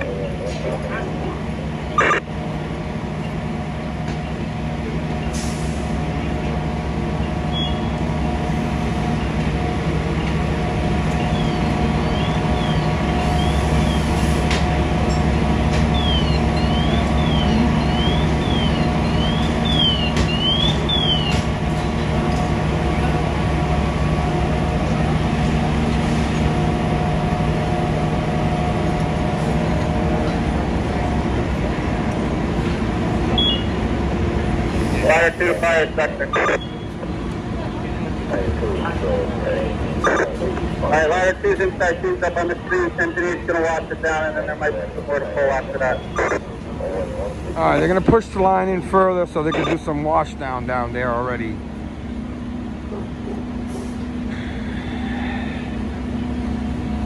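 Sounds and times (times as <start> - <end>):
fire truck diesel engine running: 0.0 - 57.0
faint siren: 15.9 - 21.2.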